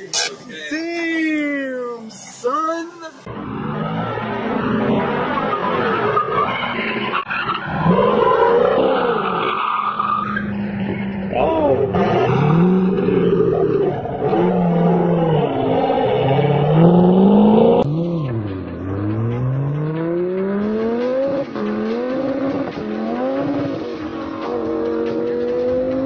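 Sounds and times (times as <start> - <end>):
car accelerating through gears: 10.0 - 26.0
sports car engine revving: 10.4 - 26.0.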